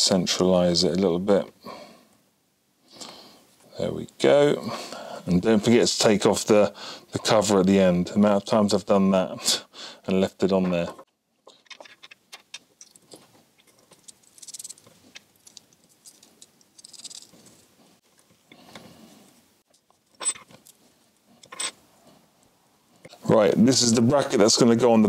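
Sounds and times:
small clicks and rustling of handling: 10.8s - 18.8s, 19.7s - 21.8s.

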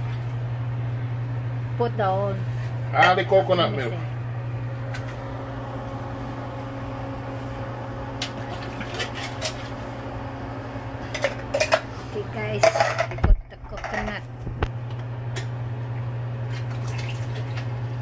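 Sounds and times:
low electrical hum: 0.0s - 18.0s
metal can clinking and scraping: 12.6s - 14.2s.

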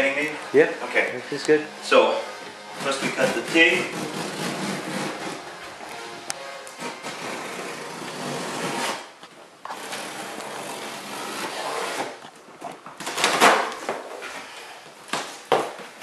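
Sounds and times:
packing tape being cut open: 2.8s - 12.2s
tape ripping: 2.8s - 14.0s.

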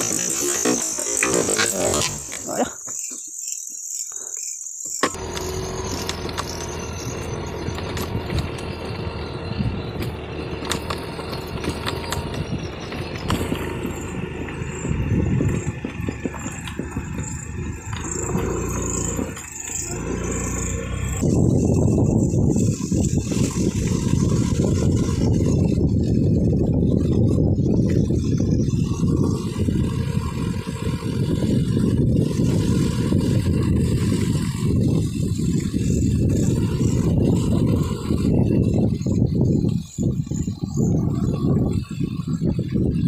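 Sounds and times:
rattles and knocks from bumps: 4.9s - 9.1s, 9.8s - 28.6s
motorcycle engine running: 5.0s - 43.0s.

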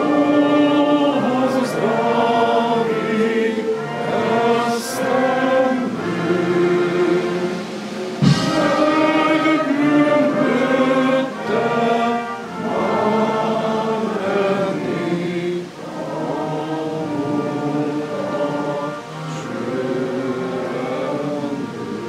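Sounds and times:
choir singing slow song: 0.0s - 22.0s
brief thump: 8.2s - 8.8s.

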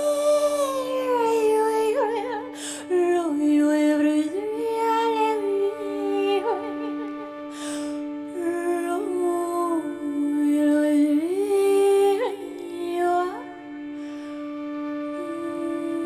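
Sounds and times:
woman singing long notes: 8.3s - 13.5s, 15.2s - 16.0s.

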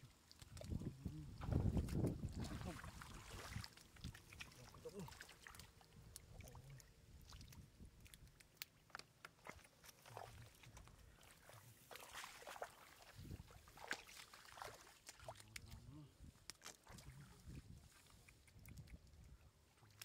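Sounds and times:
water dripping: 0.0s - 11.3s, 18.1s - 20.0s
fish splashing in shallow water: 0.0s - 20.0s.

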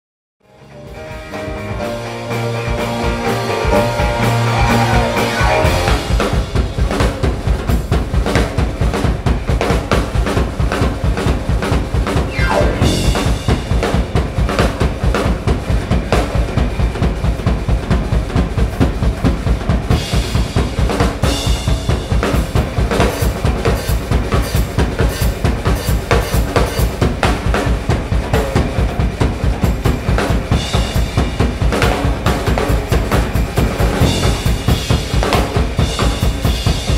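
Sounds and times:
bass drum pulse: 12.3s - 13.8s
band holding notes: 12.3s - 14.0s
cymbal crashes: 12.3s - 14.0s
snare and tom fills: 12.3s - 14.7s.

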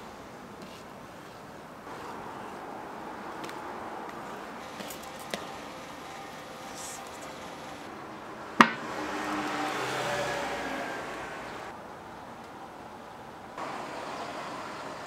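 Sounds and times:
steady background hum: 0.0s - 9.1s
sharp knock: 8.6s - 8.8s.

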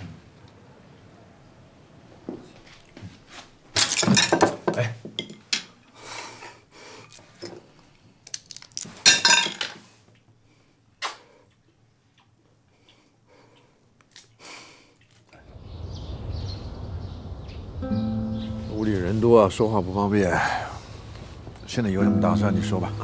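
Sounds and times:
dishes and glasses clinking: 3.8s - 5.7s, 9.1s - 9.8s.

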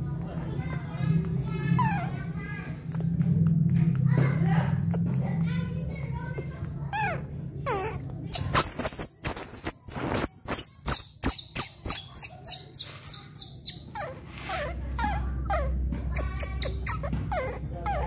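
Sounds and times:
baby monkey squealing: 1.8s - 2.2s, 6.9s - 18.0s
baby monkey whimpering: 1.8s - 2.2s, 6.9s - 18.0s.

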